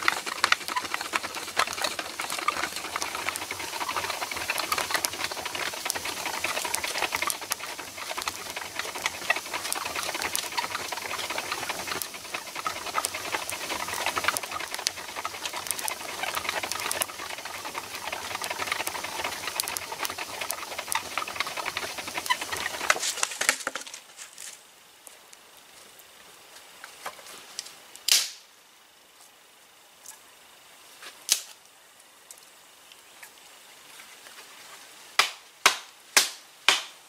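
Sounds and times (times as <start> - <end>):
wood fire crackling and popping: 0.0 - 24.5
soft hiss: 1.3 - 37.0.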